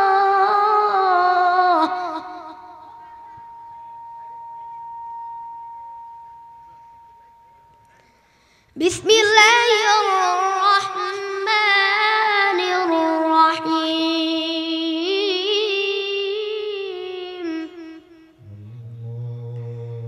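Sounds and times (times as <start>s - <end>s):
boy reciting melodically: 0.0s - 3.5s, 8.8s - 19.0s.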